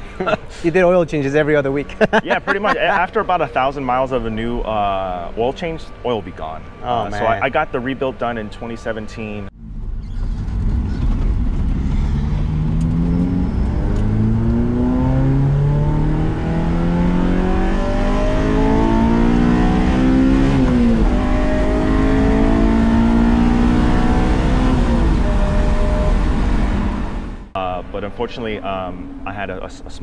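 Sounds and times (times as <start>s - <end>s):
car engine accelerating: 9.5s - 27.6s.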